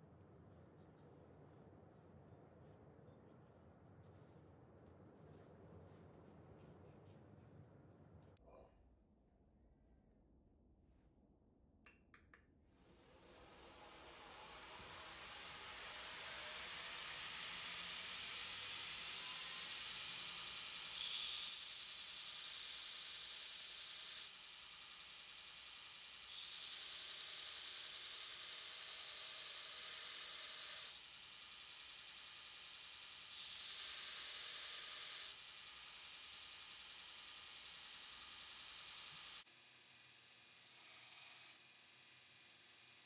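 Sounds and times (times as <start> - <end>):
belt grinder grinding steel: 14.0 - 39.4.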